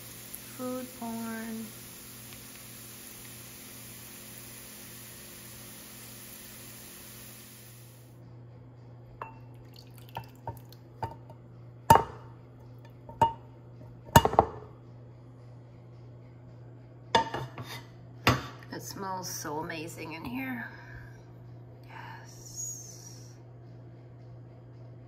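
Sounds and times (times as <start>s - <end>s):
steady hiss: 0.0s - 8.1s
low steady hum: 0.0s - 25.0s.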